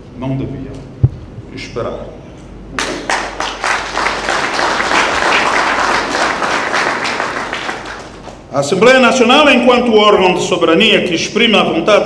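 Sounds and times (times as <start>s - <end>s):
audience applause: 2.8s - 8.5s.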